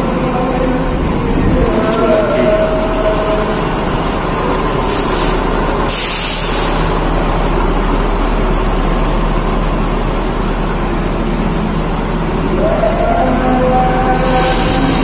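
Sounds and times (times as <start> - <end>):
bus engine running: 0.0 - 15.0
compressed air hissing: 4.9 - 6.9.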